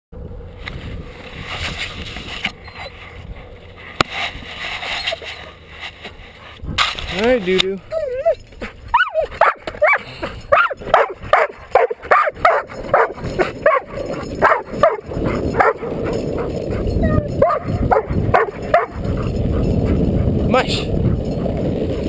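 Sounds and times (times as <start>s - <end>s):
longboard wheels rolling on asphalt: 0.2s - 22.0s
dog yelping and whining: 2.5s - 3.2s, 4.8s - 5.7s, 7.8s - 20.3s.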